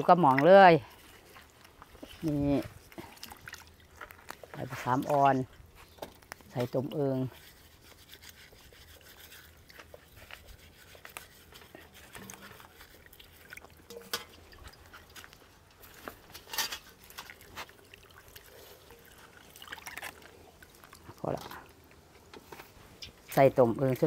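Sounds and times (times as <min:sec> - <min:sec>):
small splashes and knocks: 0:00.0 - 0:24.0
water sloshing and trickling: 0:00.0 - 0:24.0.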